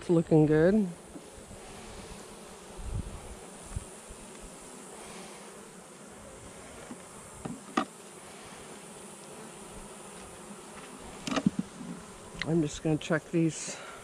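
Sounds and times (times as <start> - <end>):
bees buzzing: 0.1 - 14.0.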